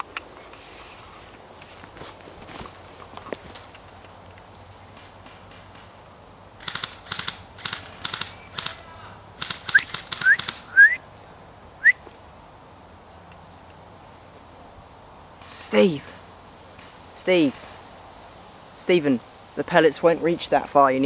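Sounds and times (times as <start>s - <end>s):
footsteps through bracken: 0.0s - 6.1s.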